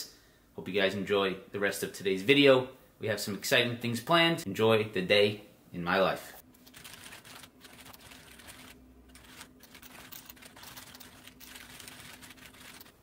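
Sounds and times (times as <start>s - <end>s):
mechanical keyboard typing: 6.6s - 13.0s.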